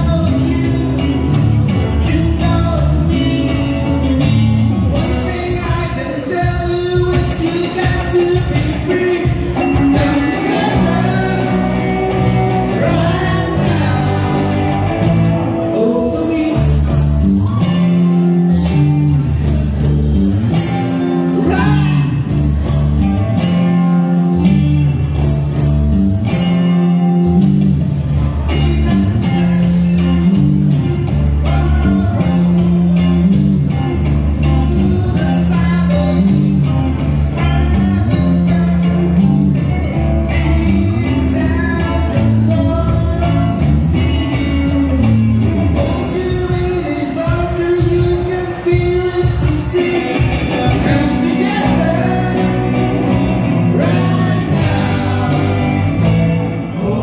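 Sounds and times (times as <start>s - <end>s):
bass guitar: 0.0s - 57.0s
drums: 0.0s - 57.0s
electric guitars: 0.0s - 57.0s
keyboard: 0.0s - 57.0s
person singing: 1.8s - 19.3s, 34.4s - 45.1s, 45.8s - 57.0s.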